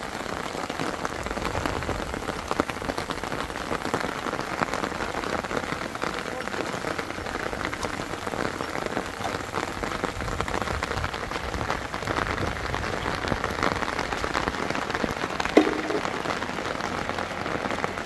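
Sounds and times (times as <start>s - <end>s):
rain pattering: 0.0s - 18.0s
loud knock: 15.6s - 16.2s.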